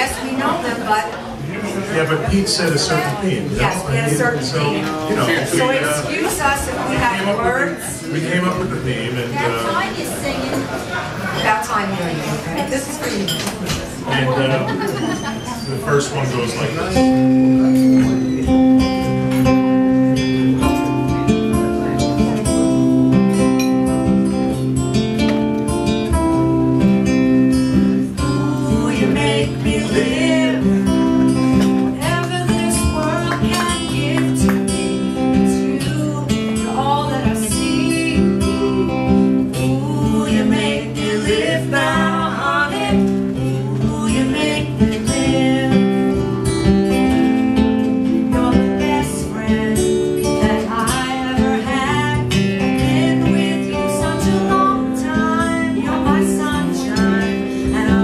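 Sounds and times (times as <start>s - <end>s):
acoustic guitar strumming: 14.2s - 58.0s
woman and man singing: 28.0s - 46.3s, 48.0s - 58.0s.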